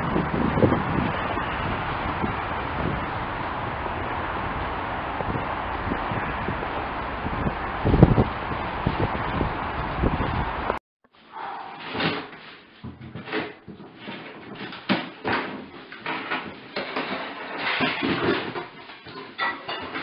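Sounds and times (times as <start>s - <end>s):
puppies knocking cardboard box: 11.8s - 20.0s.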